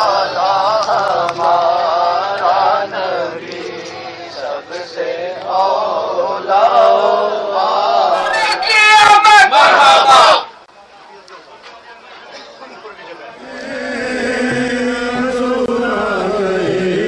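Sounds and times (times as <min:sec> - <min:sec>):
men chanting together: 0:00.0 - 0:08.3, 0:13.4 - 0:17.0.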